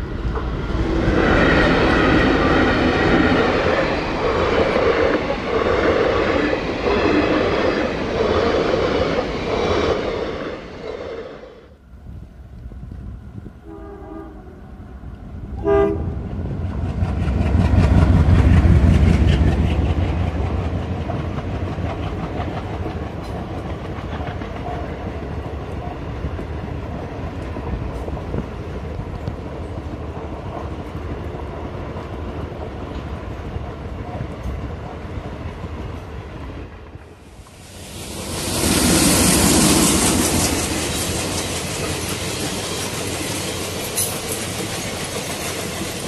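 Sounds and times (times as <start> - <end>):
train coaches rolling rumble: 0.0 - 13.8, 14.6 - 46.0
locomotive horn blasts: 13.6 - 14.6, 15.6 - 16.2
wheels clacking over rail joints: 39.6 - 46.0.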